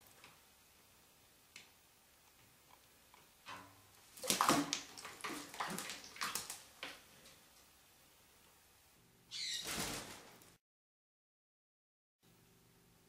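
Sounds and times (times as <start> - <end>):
parrot splashing in water: 3.4 - 7.4.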